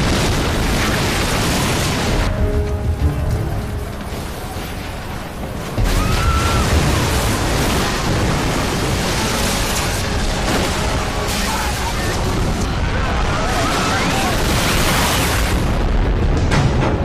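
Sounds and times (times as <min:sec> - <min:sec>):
explosion sound effects rumbling: 0:00.0 - 0:17.0
faint music: 0:02.0 - 0:17.0.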